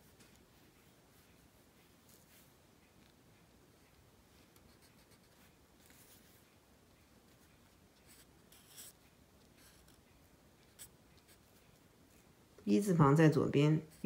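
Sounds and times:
marker scratching on paper: 4.5s - 6.4s, 8.0s - 9.0s.

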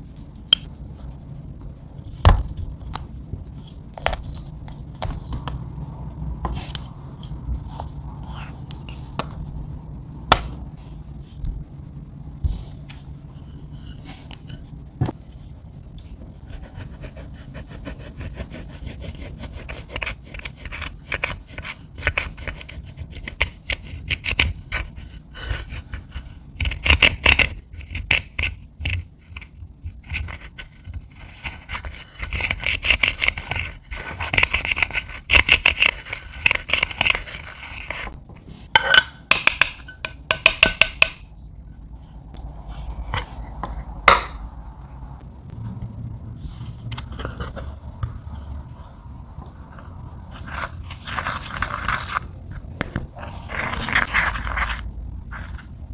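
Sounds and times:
pick scraping pressed powder: 16.4s - 41.5s, 49.7s - 55.8s.

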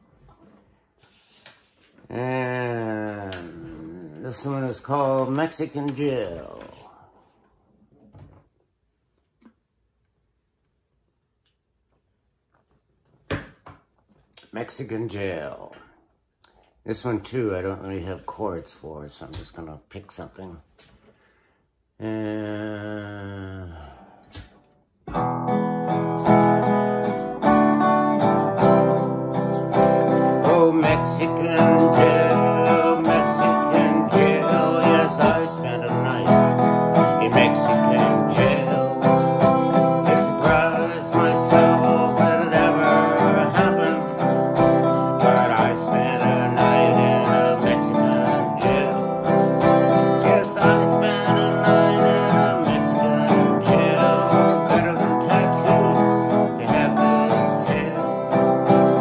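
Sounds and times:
man singing: 2.1s - 7.0s, 22.0s - 24.4s, 30.2s - 59.0s
acoustic guitar strumming: 25.0s - 59.0s.

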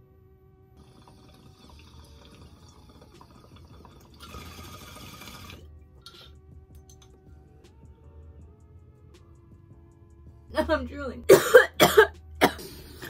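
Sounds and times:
water bubbling in a bong: 0.8s - 6.2s.

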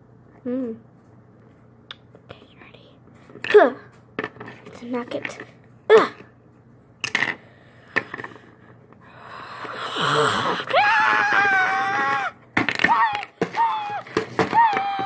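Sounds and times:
high-pitched wordless cry: 9.9s - 15.0s.

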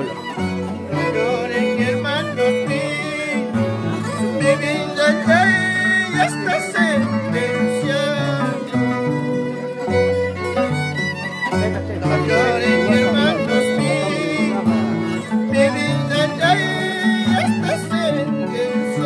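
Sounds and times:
plucked harp notes: 0.0s - 1.5s
bowed violin melody: 0.0s - 19.0s.

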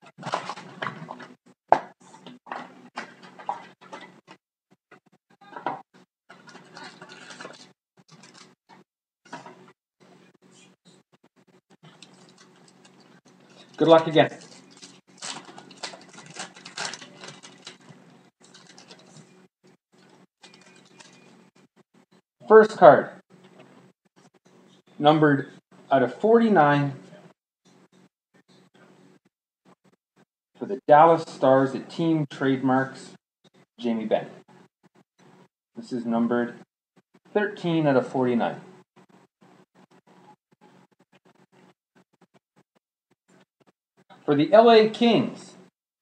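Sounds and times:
cardboard box and foil rustling: 0.2s - 1.2s, 6.4s - 8.6s, 11.9s - 19.3s, 20.0s - 21.4s.

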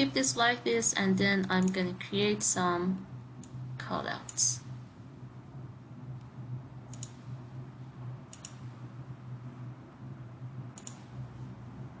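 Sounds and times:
steady low hum: 0.0s - 12.0s
computer mouse clicking: 6.9s - 7.2s, 8.3s - 8.6s, 10.7s - 11.1s.

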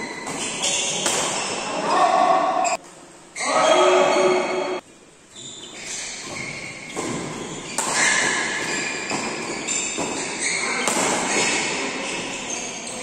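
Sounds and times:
racket hitting shuttlecock: 0.1s - 1.6s, 6.2s - 11.8s.

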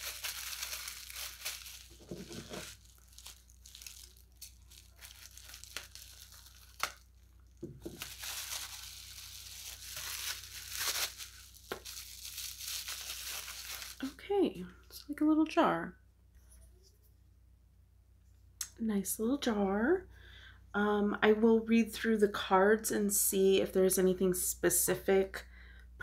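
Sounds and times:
wrapping crinkling and tearing: 0.0s - 14.2s.

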